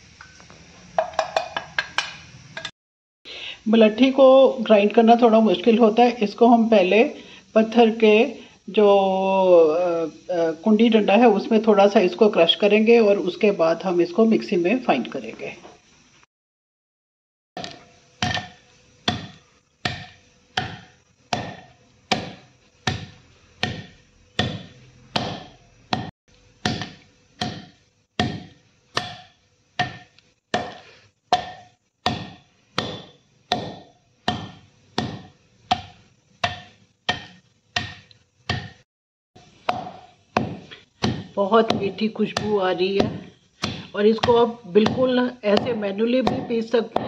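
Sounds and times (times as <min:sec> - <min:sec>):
pestle pounding in stone mortar: 0:17.6 - 0:38.8, 0:39.4 - 0:47.0.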